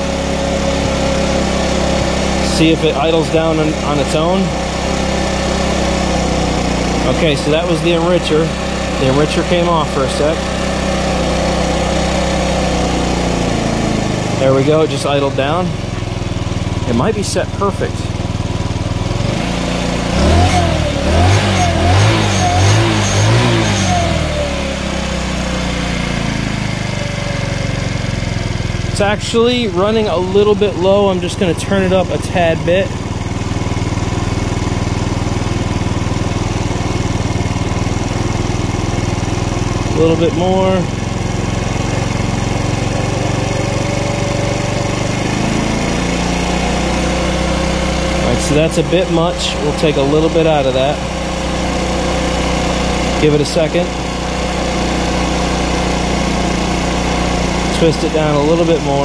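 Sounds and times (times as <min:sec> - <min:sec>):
scooter engine idling and revving: 0:00.0 - 0:59.0.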